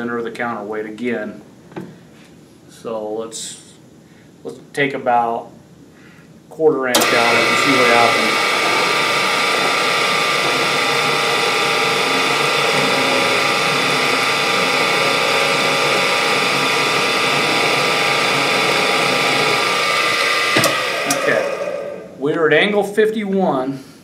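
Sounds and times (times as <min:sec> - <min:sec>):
drill boring into metal: 0:07.0 - 0:22.2.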